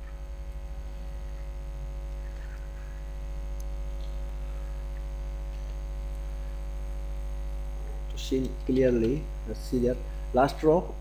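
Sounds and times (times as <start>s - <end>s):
electrical mains hum: 0.0s - 11.0s
narrator speaking: 8.1s - 11.0s.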